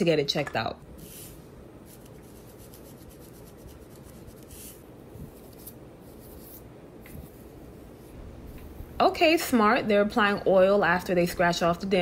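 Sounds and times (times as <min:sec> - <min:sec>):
fingernails scratching scalp: 0:01.9 - 0:04.8.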